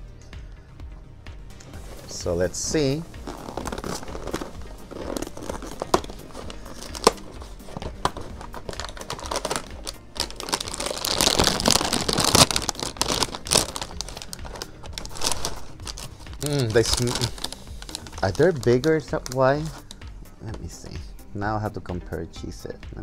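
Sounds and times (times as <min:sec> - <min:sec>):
plastic pouch crinkling and tearing: 0:03.2 - 0:20.0.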